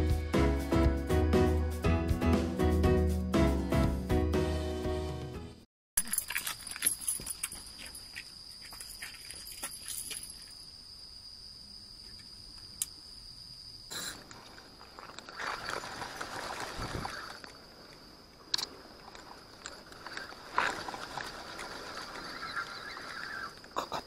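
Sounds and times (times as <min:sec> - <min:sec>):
rustling and scraping: 0:19.1 - 0:22.7.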